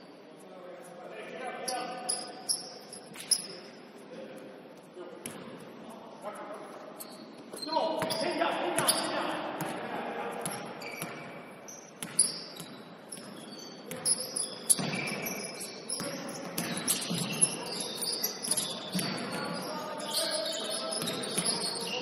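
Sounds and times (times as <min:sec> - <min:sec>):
sneaker squeaks on floor: 0:01.7 - 0:03.8, 0:06.9 - 0:09.1, 0:10.4 - 0:22.0.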